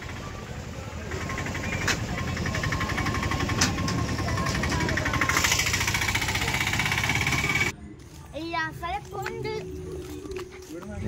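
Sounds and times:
vehicle engine idling: 0.0s - 7.7s.

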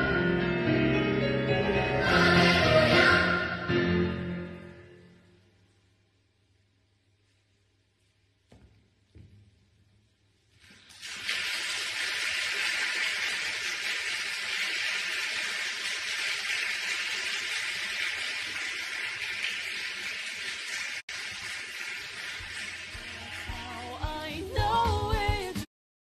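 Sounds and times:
audience applause: 11.0s - 24.4s.

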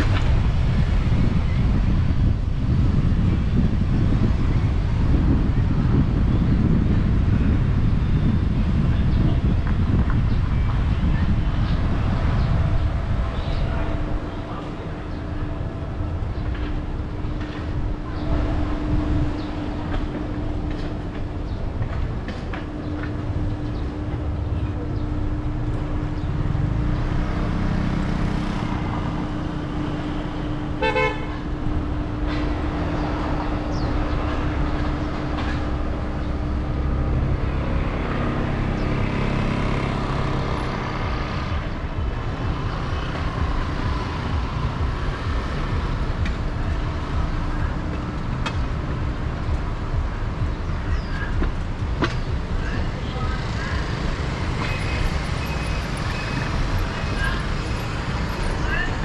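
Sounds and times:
road traffic rumble: 0.0s - 59.0s
car horn toot: 30.8s - 31.4s.

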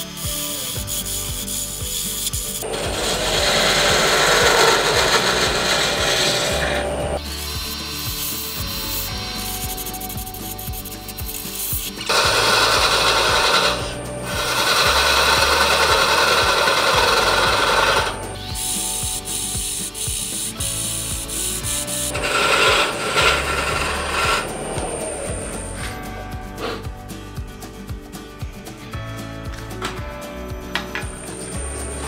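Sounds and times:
chisel scraping spinning wood: 0.0s - 26.8s
lathe humming: 2.6s - 8.0s, 12.0s - 19.6s, 21.3s - 26.0s.

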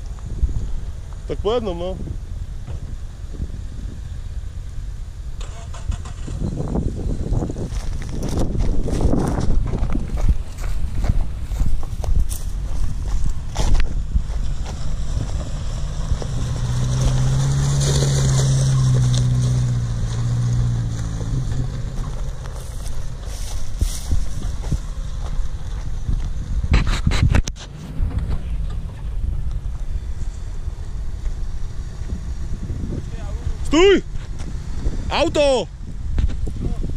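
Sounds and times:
wind buffeting microphone: 0.0s - 1.1s, 1.9s - 4.4s, 5.7s - 36.9s
vehicle engine driving past: 13.5s - 26.6s.

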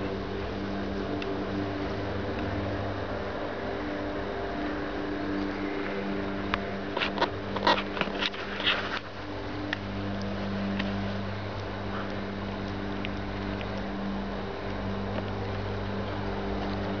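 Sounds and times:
low motor hum: 0.0s - 17.0s.

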